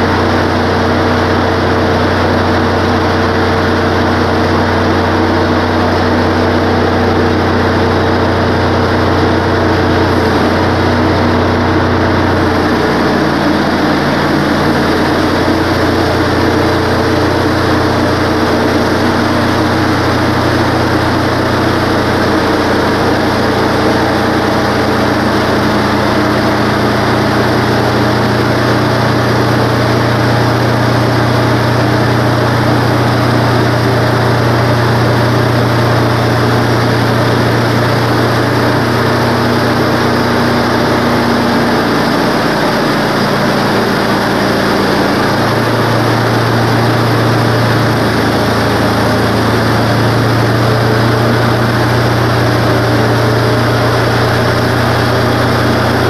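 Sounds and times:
band saw cutting log: 0:00.0 - 0:56.0
sawmill engine running: 0:00.0 - 0:56.0.

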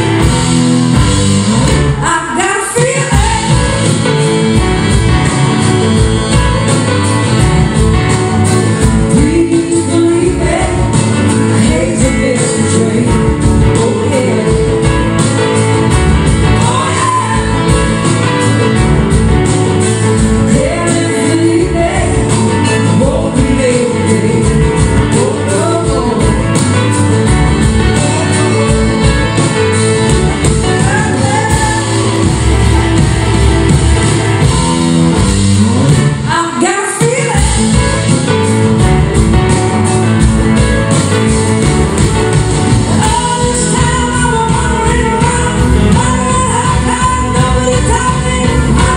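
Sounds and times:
live rock band: 0:00.0 - 0:48.9
person singing: 0:02.0 - 0:04.7, 0:08.8 - 0:18.6, 0:20.2 - 0:27.2, 0:27.9 - 0:33.9, 0:36.2 - 0:38.2, 0:42.9 - 0:48.9.

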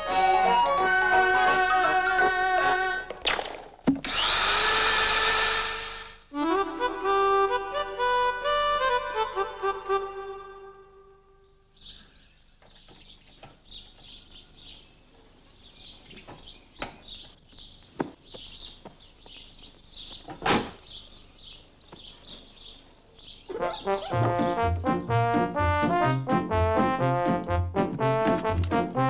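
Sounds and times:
brass band music: 0:00.0 - 0:03.1, 0:23.5 - 0:29.0
birds chirping: 0:08.8 - 0:25.6.

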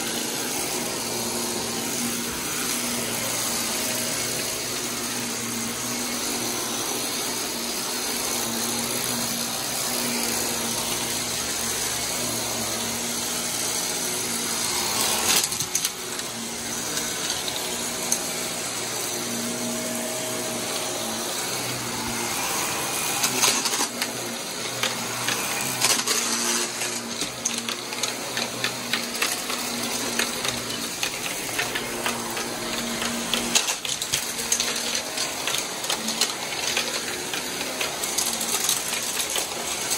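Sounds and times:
vacuum cleaner motor whine: 0:00.0 - 0:39.9
debris clicking and rattling: 0:23.2 - 0:39.9.

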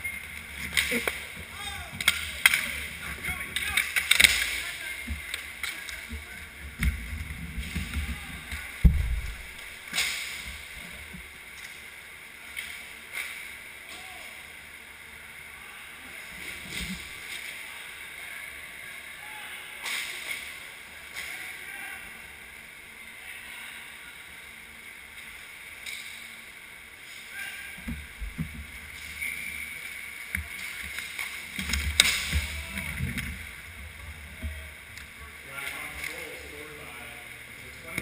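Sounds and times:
steady hiss: 0:00.0 - 0:38.0
low rumbling and knocks: 0:06.7 - 0:09.6.

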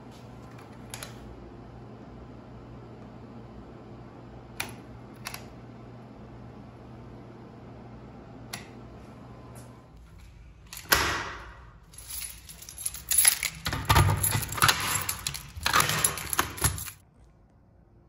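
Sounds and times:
keys jangling: 0:11.8 - 0:17.0
mechanism rattling: 0:11.8 - 0:17.0.

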